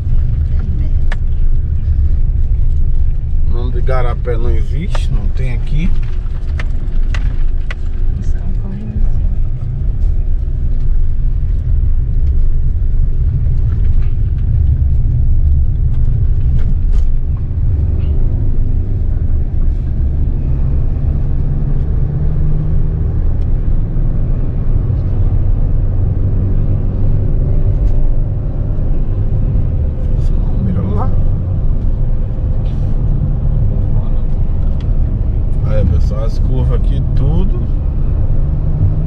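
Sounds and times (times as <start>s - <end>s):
car interior rumble: 0.0s - 39.0s.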